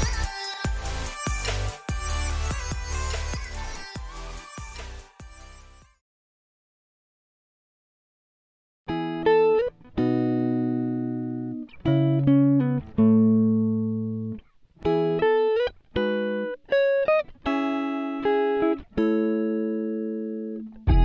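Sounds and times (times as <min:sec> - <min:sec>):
guitar plucking notes and chords: 0:00.0 - 0:04.4, 0:08.9 - 0:21.0.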